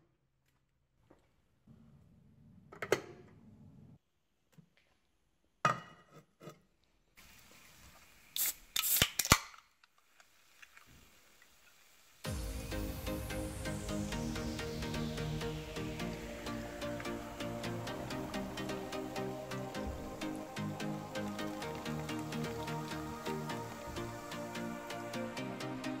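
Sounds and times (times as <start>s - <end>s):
fizzing hiss of carbonation: 7.2s - 9.4s, 10.0s - 26.0s
can pull tab snapping: 8.4s - 9.6s.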